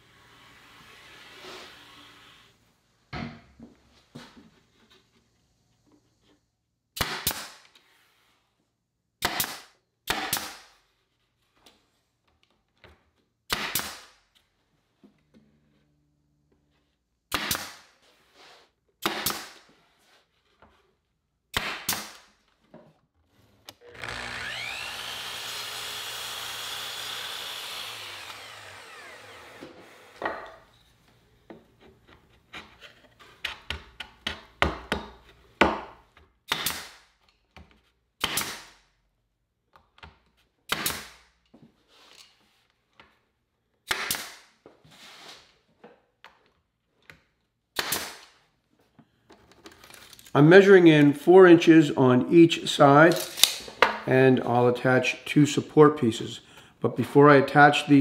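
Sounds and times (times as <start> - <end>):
nail gun shots into plywood: 7.0 - 7.6, 9.2 - 10.7, 13.5 - 14.2, 17.3 - 17.9, 19.0 - 19.6, 21.5 - 22.3, 36.5 - 37.1, 38.2 - 38.8, 40.7 - 41.3, 43.8 - 44.5, 47.8 - 48.4
power tool whirring: 23.8 - 30.3.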